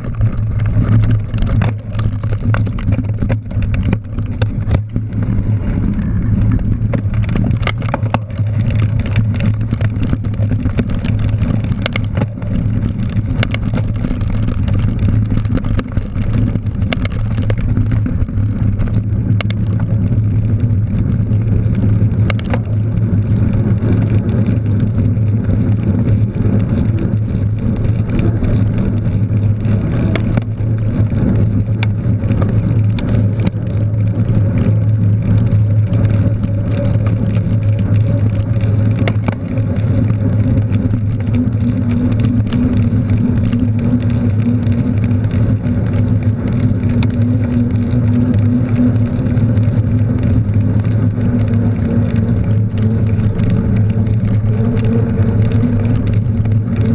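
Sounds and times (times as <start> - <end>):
bike riding rumble: 0.0 - 56.9.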